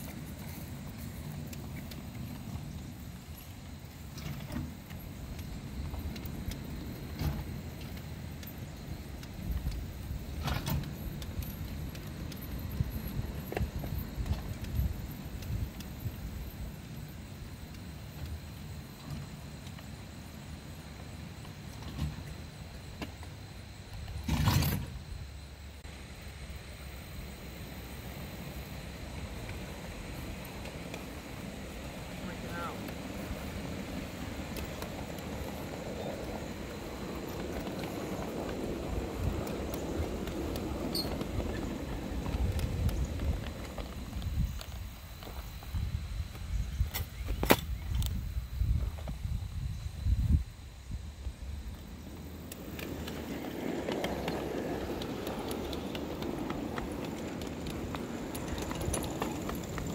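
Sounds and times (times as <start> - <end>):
train rolling rumble: 0.0 - 47.3, 47.9 - 59.9
wheels rumbling on steel track: 27.8 - 46.7, 51.4 - 59.9.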